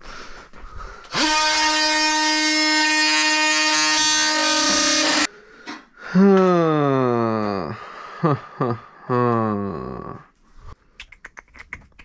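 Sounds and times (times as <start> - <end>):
bandsaw motor whining: 1.2 - 5.3.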